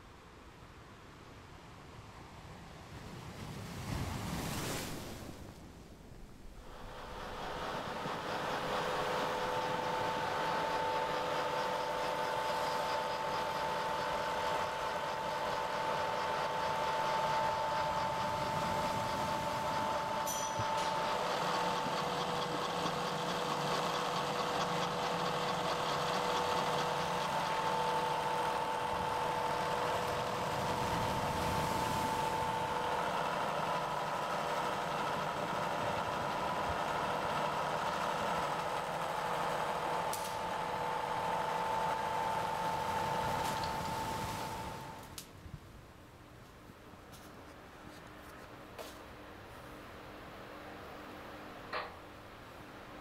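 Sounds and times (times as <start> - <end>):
end mill cutting metal: 6.7 - 45.1
milling machine running: 6.7 - 45.1.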